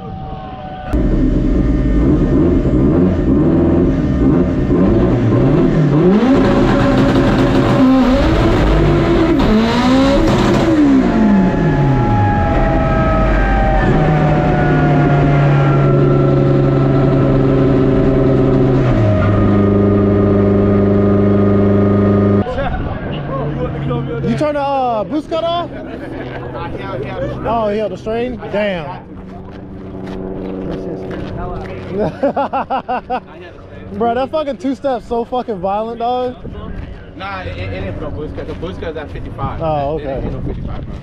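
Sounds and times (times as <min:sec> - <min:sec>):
race car engine accelerating: 0:00.9 - 0:28.3.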